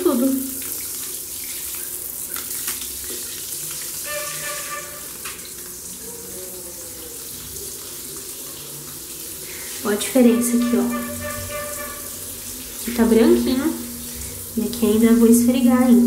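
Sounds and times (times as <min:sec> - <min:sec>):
water running onto tiled floor: 0:00.0 - 0:16.0.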